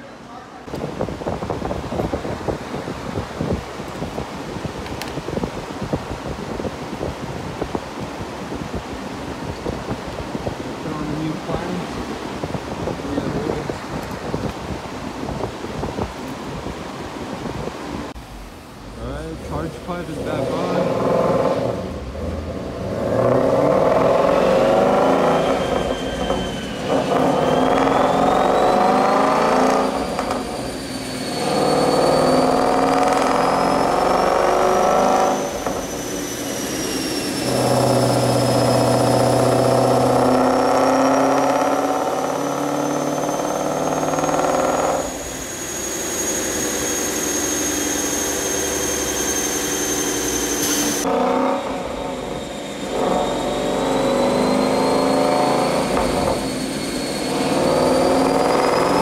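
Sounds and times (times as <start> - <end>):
high turbo whine: 0.0 - 59.0
car engine revving on a dyno: 19.6 - 59.0.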